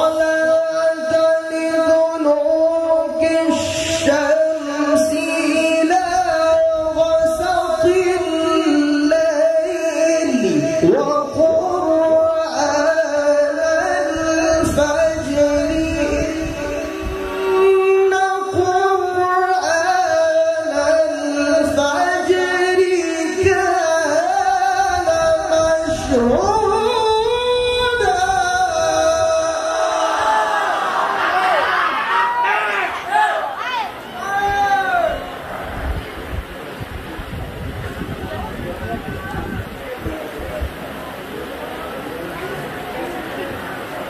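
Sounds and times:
man reciting melodically: 0.0s - 30.3s.

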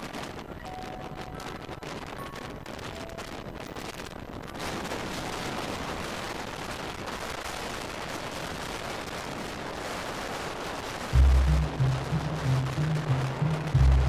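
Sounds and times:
wind noise on microphone: 0.0s - 14.0s
music with heavy bass beat: 11.2s - 14.0s.

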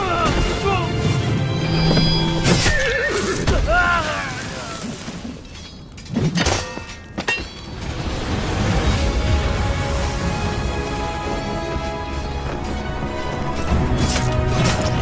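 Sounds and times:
background music: 0.0s - 4.0s, 6.4s - 15.0s.

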